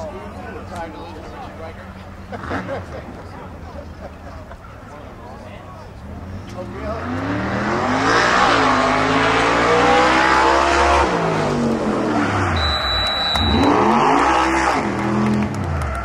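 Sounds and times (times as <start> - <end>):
vehicle engine revving: 6.1 - 16.0.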